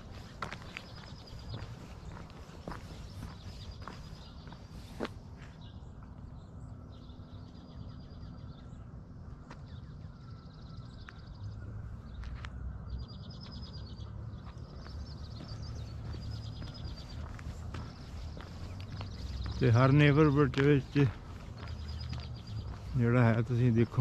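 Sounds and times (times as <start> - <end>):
footsteps: 14.4 - 24.0
songbird trilling: 14.7 - 24.0.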